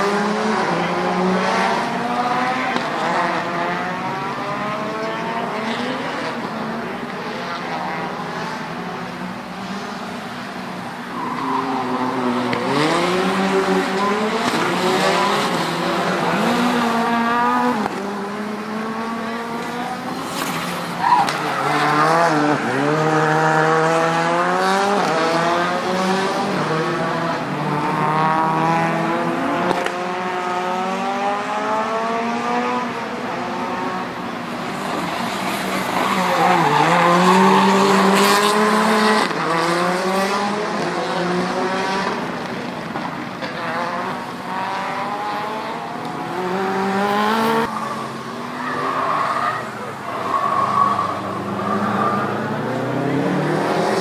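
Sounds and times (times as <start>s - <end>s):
rally car engines revving: 0.0s - 54.0s.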